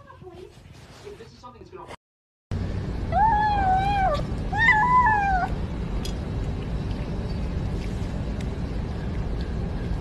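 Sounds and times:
low background rumble: 2.5 - 10.0
kitten meowing: 3.2 - 5.5.

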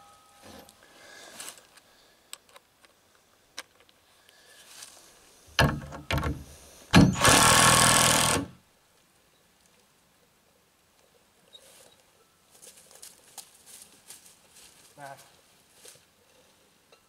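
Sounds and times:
cordless drill driving screw: 7.0 - 8.6.

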